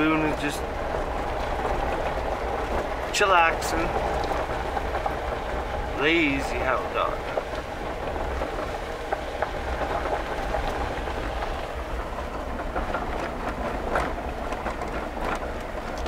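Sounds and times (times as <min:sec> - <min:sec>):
gravel clicks and rattles: 0:00.0 - 0:16.0
vehicle road rumble on gravel: 0:00.0 - 0:16.0.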